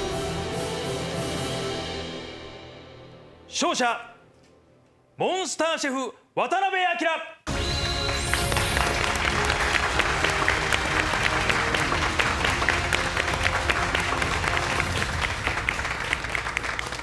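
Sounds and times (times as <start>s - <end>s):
background music: 0.0s - 6.3s, 7.5s - 17.0s
people applauding: 7.5s - 17.0s.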